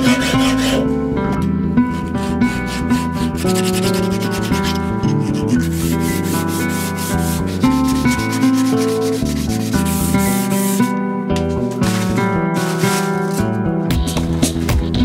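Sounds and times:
filing steel by hand: 0:00.0 - 0:01.0, 0:01.8 - 0:10.9
instrumental background music: 0:00.0 - 0:15.0.

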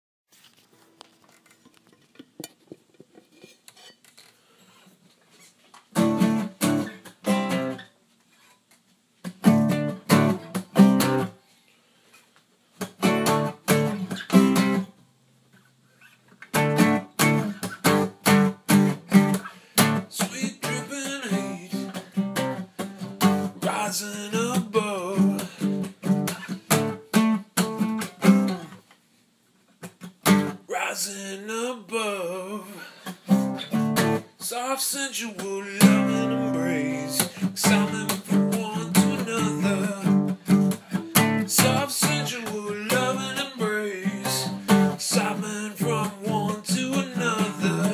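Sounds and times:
acoustic guitar strumming: 0:05.9 - 0:07.8, 0:09.2 - 0:11.4, 0:12.8 - 0:14.9, 0:16.5 - 0:28.8, 0:30.0 - 0:30.8, 0:33.1 - 0:34.6, 0:35.4 - 0:47.9.

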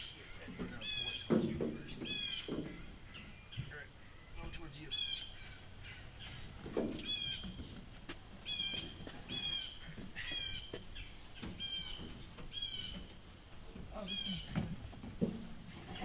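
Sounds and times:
bird calling squeaky notes: 0:00.0 - 0:06.4, 0:07.0 - 0:07.6, 0:08.4 - 0:13.0
canoe thump: 0:00.4 - 0:03.8, 0:06.5 - 0:16.0.

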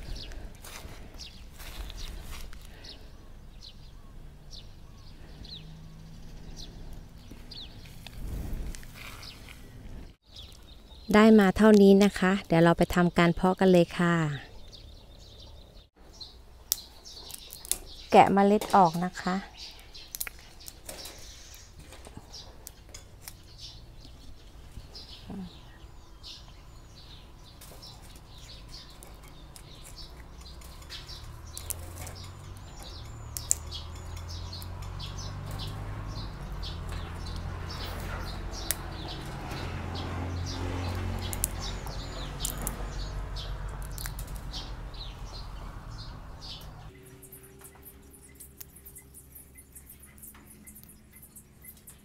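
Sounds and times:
birds chirping: 0:00.0 - 0:52.0
seed pods crackling: 0:19.6 - 0:22.1, 0:27.6 - 0:37.5, 0:40.9 - 0:43.0, 0:43.6 - 0:44.6.

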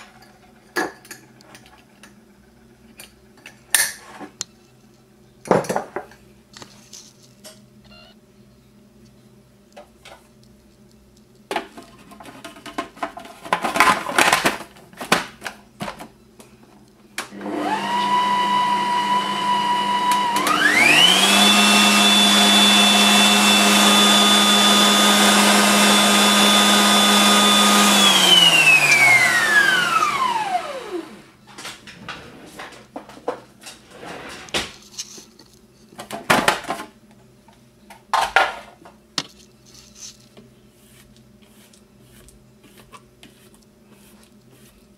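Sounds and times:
food processor motor whining: 0:17.3 - 0:31.3.

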